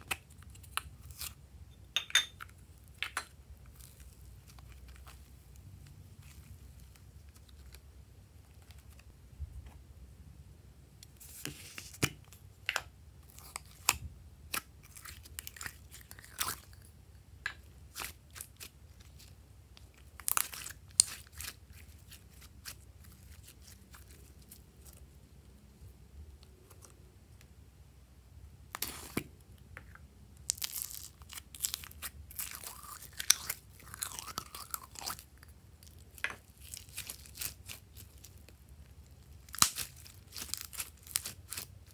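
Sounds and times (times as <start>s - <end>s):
sticky slime pops and crackles: 39.5s - 41.7s.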